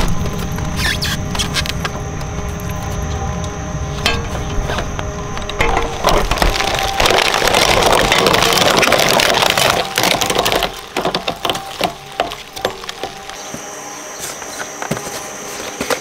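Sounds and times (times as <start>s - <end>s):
shredder cracking plastic: 4.5s - 13.4s.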